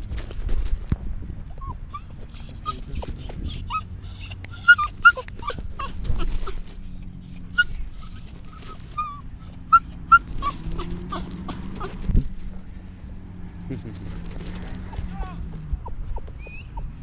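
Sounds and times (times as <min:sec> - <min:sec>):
dog whining: 0:01.5 - 0:12.3, 0:14.8 - 0:17.0.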